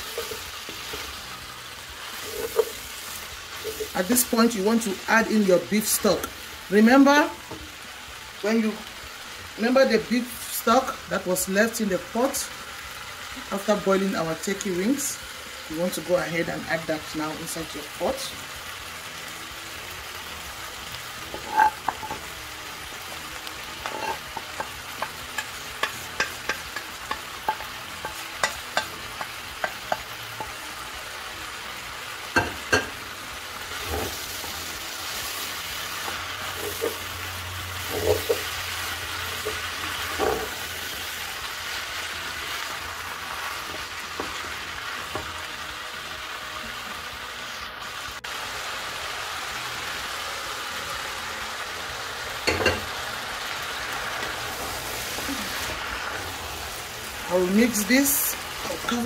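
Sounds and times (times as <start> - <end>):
vegetables sizzling in a pan: 0.0 - 59.0
spatula knocking and scraping pan: 23.8 - 30.6.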